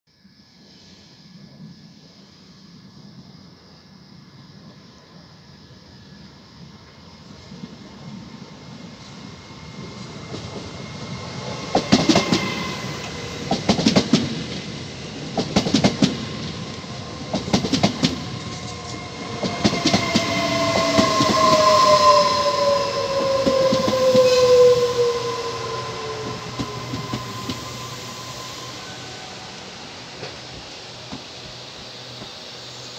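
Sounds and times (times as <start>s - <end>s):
electric train whine: 0.1s - 32.9s
train wheels clattering: 9.9s - 14.7s, 15.3s - 32.4s.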